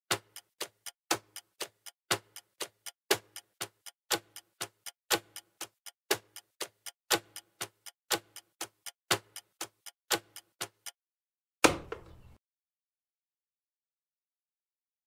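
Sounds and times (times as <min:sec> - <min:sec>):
clock ticking: 0:00.1 - 0:11.0.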